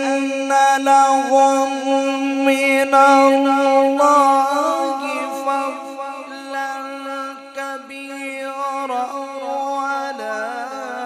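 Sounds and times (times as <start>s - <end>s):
man chanting recitation: 0.0s - 11.0s.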